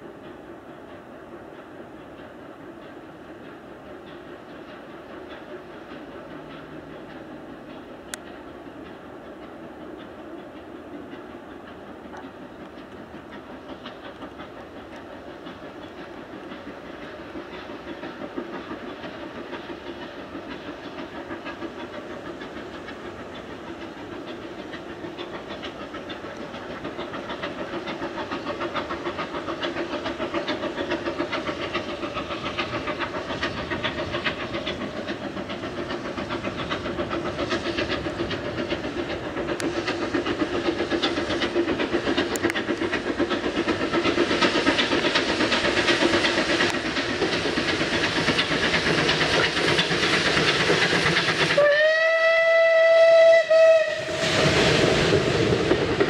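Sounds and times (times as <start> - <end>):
rush of exhaust and steam: 0.0 - 56.0
steam locomotive exhaust beats: 0.0 - 56.0
steam locomotive whistle: 51.5 - 54.5.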